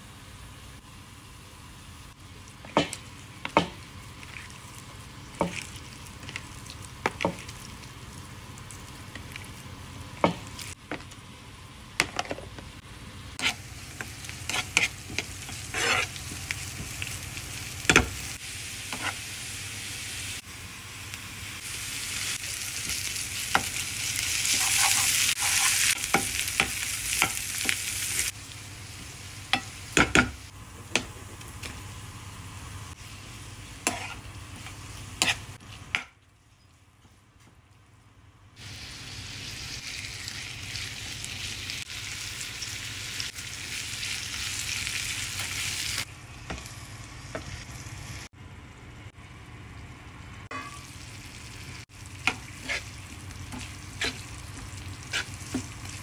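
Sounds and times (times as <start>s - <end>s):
onions sizzling in oil: 12.9s - 35.7s, 38.6s - 48.3s, 50.4s - 56.0s.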